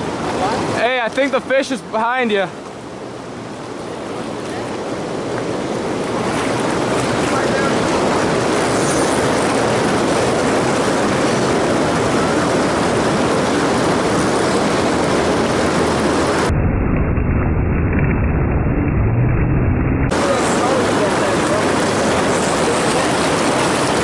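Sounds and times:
river water rushing: 0.0 - 16.5, 20.1 - 24.0.

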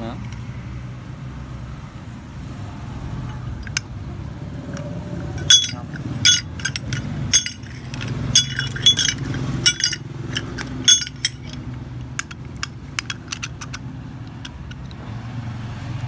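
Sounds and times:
lighter metal parts clinking: 3.6 - 3.9, 4.7 - 15.0.

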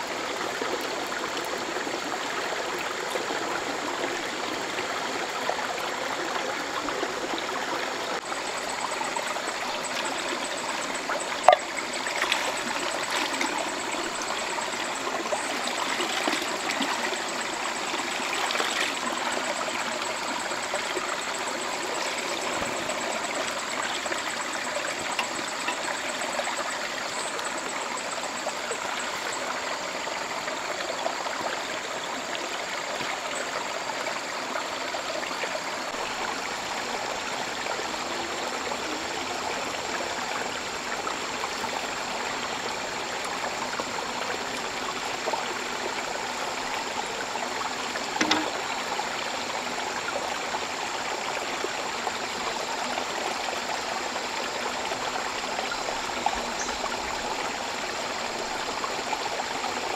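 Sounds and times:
stream flowing: 0.0 - 59.9
thin high tone: 8.4 - 28.2, 48.2 - 48.7
knock: 48.2 - 48.6.

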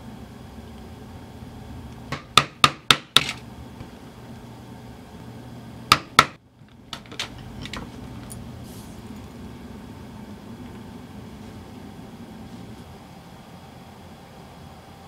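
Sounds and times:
mallet striking chisel into leather: 5.9 - 6.4.

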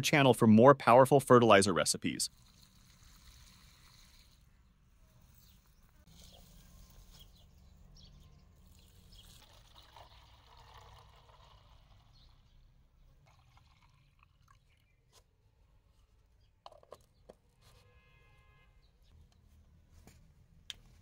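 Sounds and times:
liquid pouring and trickling: 2.3 - 4.4, 8.6 - 15.0.

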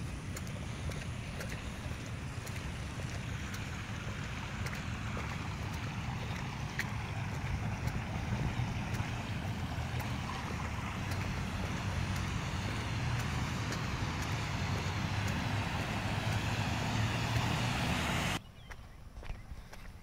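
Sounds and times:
car road rumble: 0.0 - 18.4
tyres hissing on wet road: 0.0 - 18.4.

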